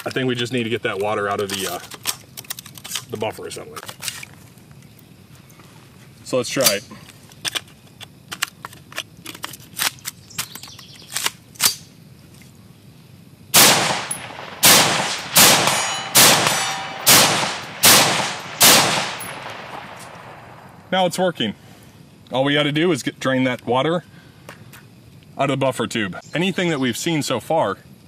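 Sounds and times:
rapid rifle shots: 0:13.6 - 0:20.7
rifle handling clicks: 0:13.6 - 0:20.7.

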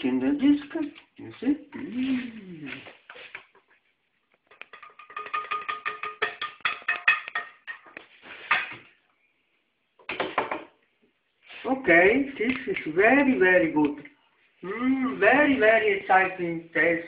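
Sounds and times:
spoon clinking on ceramic plate: 0:04.5 - 0:08.8.

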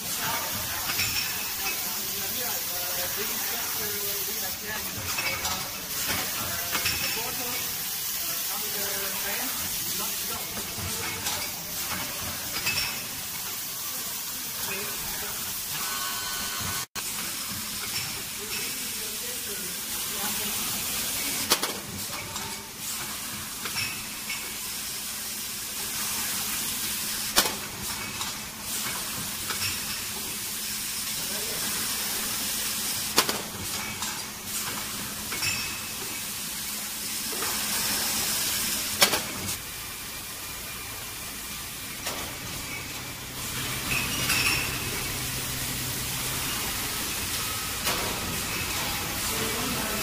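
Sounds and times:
printing machine hissing and humming: 0:00.0 - 0:50.0
glass bottles clinking: 0:00.9 - 0:01.9, 0:04.9 - 0:07.7, 0:10.6 - 0:13.2, 0:23.6 - 0:24.6, 0:35.3 - 0:36.2, 0:43.8 - 0:45.2.

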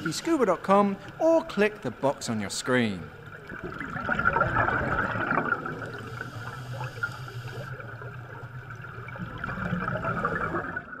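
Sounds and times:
underwater air bubbles: 0:03.0 - 0:11.0.

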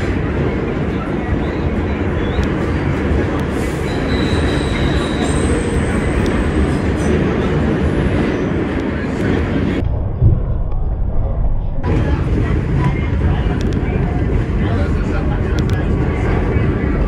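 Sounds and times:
train wheels rumbling on rails: 0:00.0 - 0:17.0
high wheel squeal: 0:03.6 - 0:06.8.

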